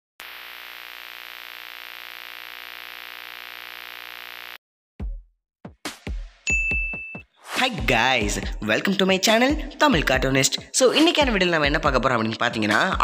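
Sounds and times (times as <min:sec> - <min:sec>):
drone of held tones: 0:00.2 - 0:04.6
electronic static hiss: 0:00.2 - 0:04.6.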